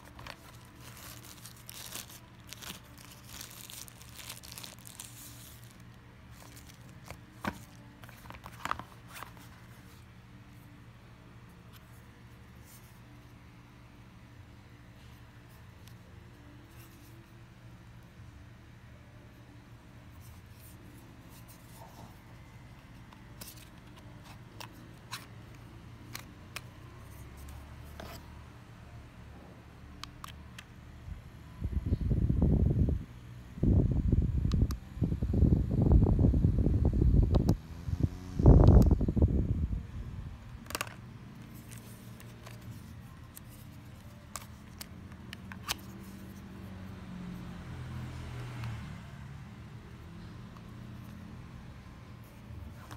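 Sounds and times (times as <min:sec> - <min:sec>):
plastic rubbing: 0:00.0 - 0:10.0.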